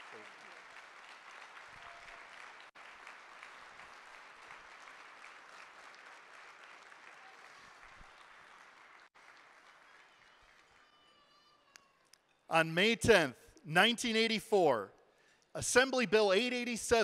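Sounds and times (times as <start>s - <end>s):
audience applauding: 0.0s - 11.8s.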